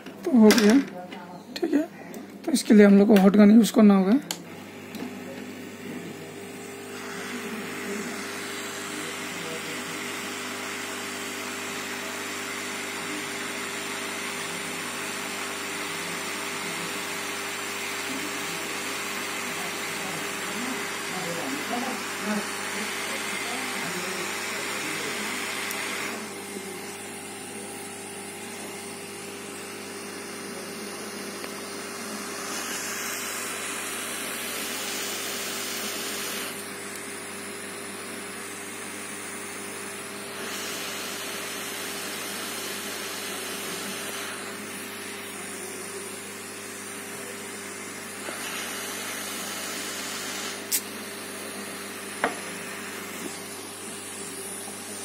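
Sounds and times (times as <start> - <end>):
hot air gun hissing: 6.8 - 10.0, 32.0 - 37.7, 38.4 - 54.9.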